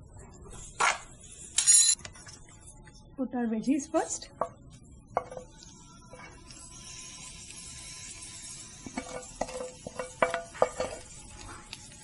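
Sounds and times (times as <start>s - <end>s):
vegetables sizzling: 5.5s - 12.0s.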